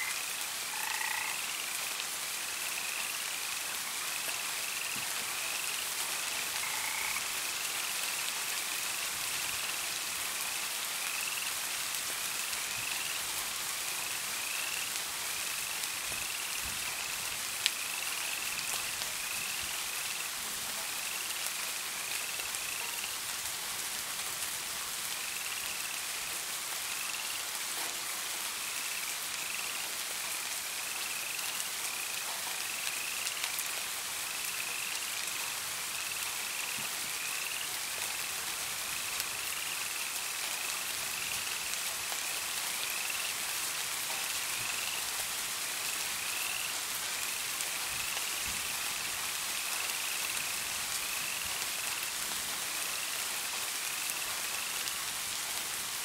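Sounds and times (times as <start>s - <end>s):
steady rain hiss: 0.0s - 56.0s
frog chirping: 0.7s - 1.4s, 6.6s - 7.2s.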